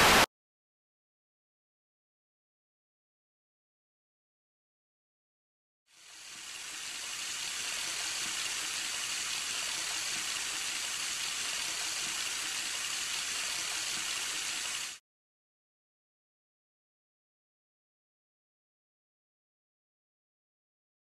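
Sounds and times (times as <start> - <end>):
tap running into a sink: 7.4 - 14.8.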